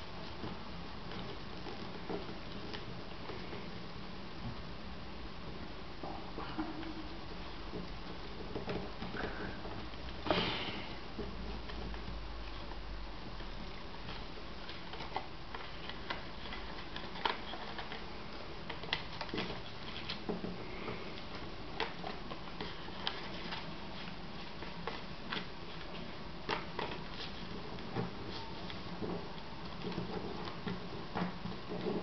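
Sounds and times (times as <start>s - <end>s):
steady background hiss: 0.0s - 32.0s
paper crackling as it is folded: 6.8s - 32.0s.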